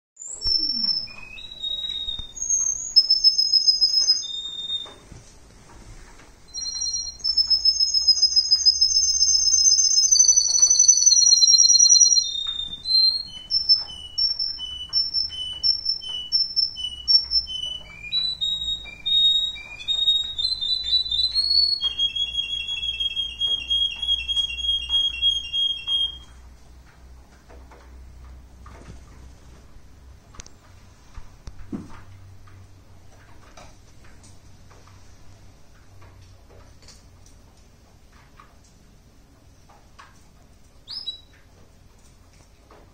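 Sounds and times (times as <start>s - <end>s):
canary singing: 0.2s - 5.1s, 6.5s - 26.4s, 40.8s - 41.4s.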